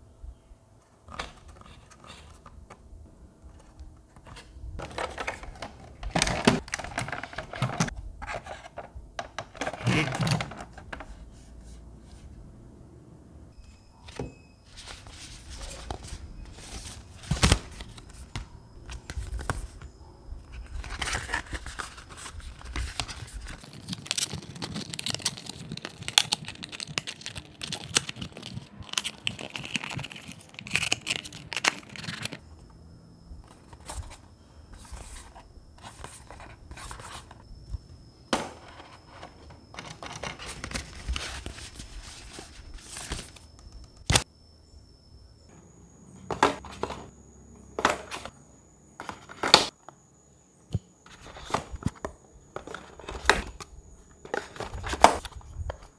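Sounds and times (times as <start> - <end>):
thin card crinkling: 20.5 - 32.4.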